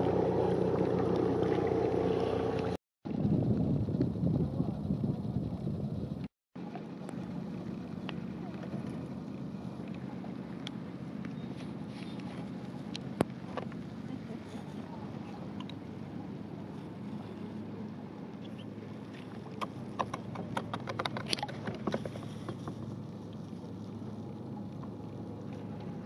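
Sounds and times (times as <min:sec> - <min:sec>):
hull grinding over shells and rock: 0:18.7 - 0:24.1.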